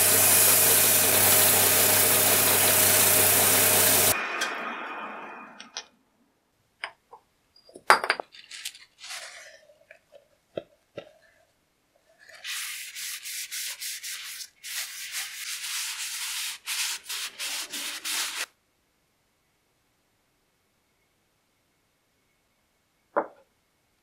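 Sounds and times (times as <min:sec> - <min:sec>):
cloth rubbing on wood: 0:12.3 - 0:18.5.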